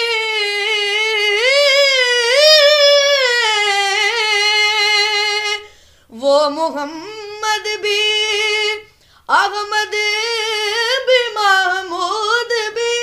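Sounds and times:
boy singing unaccompanied: 0.0s - 13.0s.

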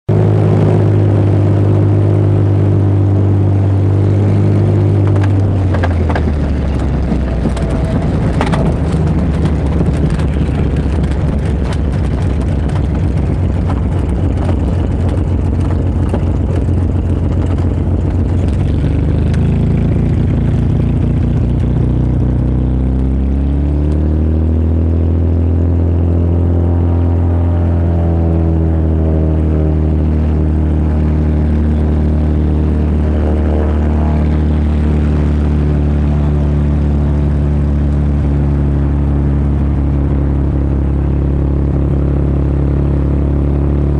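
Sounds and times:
light plane engine and propeller: 0.1s - 43.9s
rattle and knocks of landing roll: 4.3s - 22.6s.

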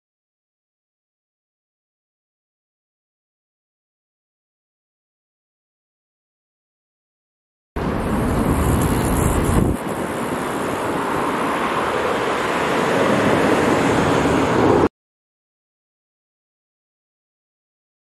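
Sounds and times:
road traffic noise: 7.8s - 14.9s
wind rumble on microphone: 7.8s - 14.9s.

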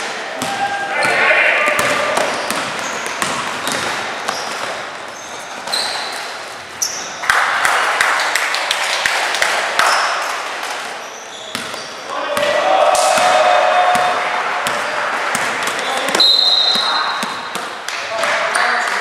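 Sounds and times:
sneakers squeaking: 0.0s - 7.3s, 9.8s - 17.9s
players calling out: 0.3s - 3.4s, 11.1s - 19.0s
basketball bouncing: 0.4s - 6.1s, 11.5s - 19.0s.

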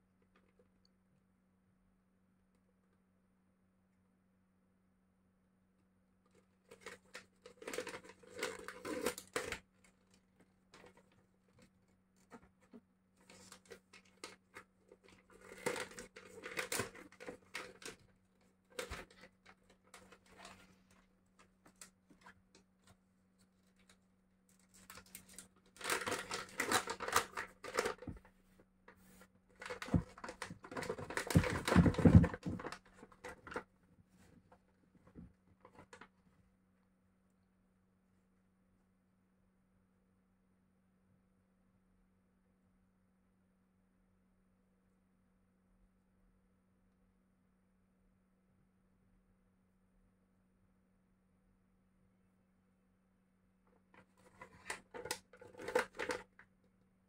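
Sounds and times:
plastic pouch crinkling: 6.7s - 9.6s, 13.3s - 18.1s, 24.7s - 28.2s.

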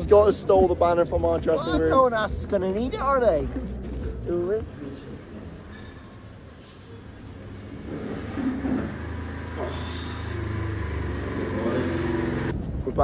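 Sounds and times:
low mechanical rumble: 7.1s - 12.5s.

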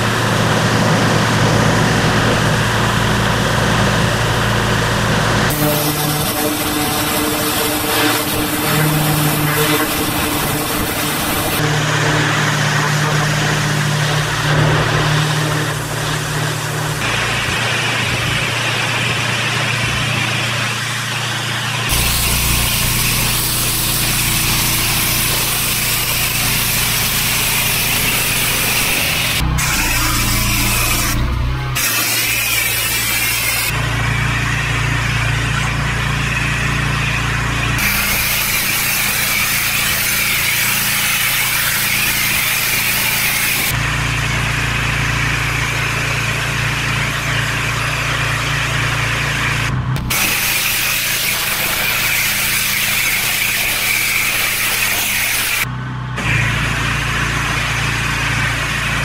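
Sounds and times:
pressure washer engine running: 0.0s - 59.0s
water jet hissing: 5.5s - 11.6s, 14.0s - 33.8s, 37.7s - 43.8s, 46.2s - 55.7s.

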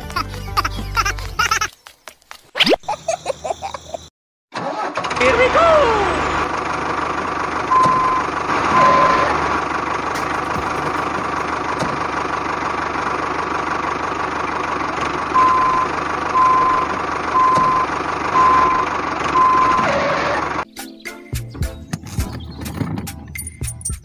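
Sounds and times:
model tractor engine running: 4.6s - 20.6s
reversing beeps: 7.7s - 8.2s, 8.8s - 9.3s, 15.4s - 20.4s.

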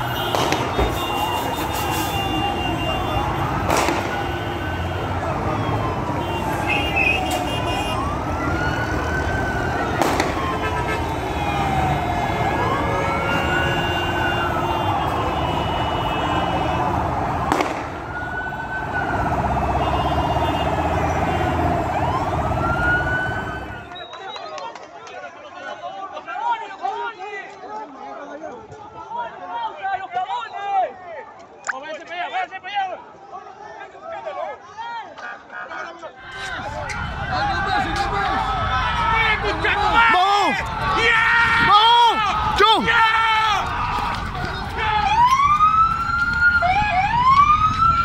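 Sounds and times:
emergency siren wailing: 0.0s - 23.9s, 36.6s - 48.0s
sharp bangs: 3.6s - 4.4s, 9.9s - 11.0s, 17.4s - 18.1s.

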